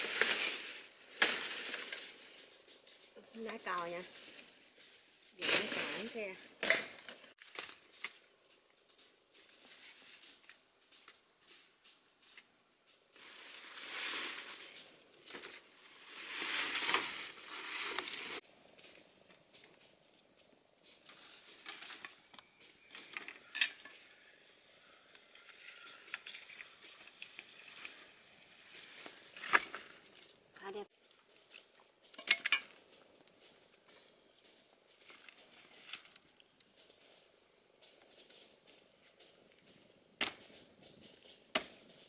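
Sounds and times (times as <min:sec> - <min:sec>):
rustling undergrowth and branches: 0:00.0 - 0:42.0
dry wood cracking: 0:29.0 - 0:42.0.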